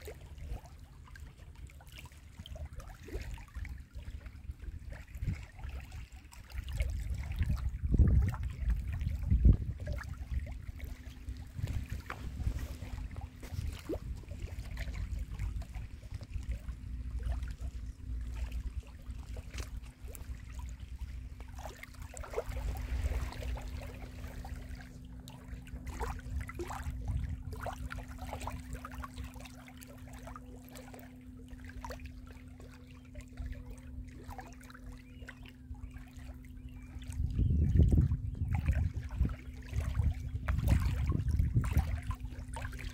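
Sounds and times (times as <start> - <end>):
lake waves lapping at shore: 0.0 - 42.9
light water drips and slaps: 0.0 - 42.9.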